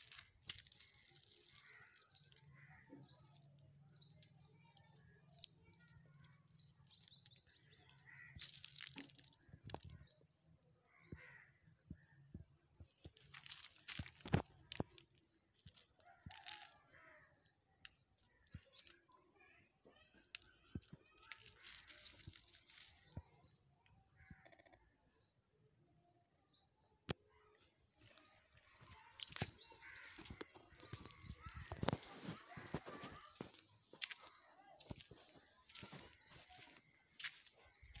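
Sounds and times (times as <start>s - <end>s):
dry stalks and tarp rustling: 0.0s - 2.5s, 13.2s - 15.0s, 21.3s - 23.0s
small birds chirping: 0.0s - 38.0s.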